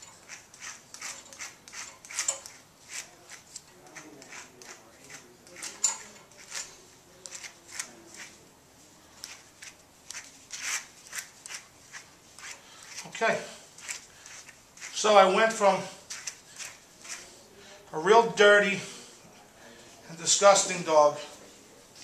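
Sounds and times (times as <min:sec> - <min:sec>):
brush scratching through dog fur: 0:00.0 - 0:08.4, 0:09.2 - 0:13.2, 0:13.8 - 0:15.1, 0:16.0 - 0:17.4.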